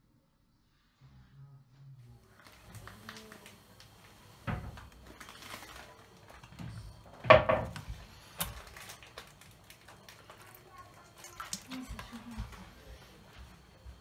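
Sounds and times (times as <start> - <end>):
containers set down on counter: 6.6 - 8.0
dull knock: 7.2 - 7.8.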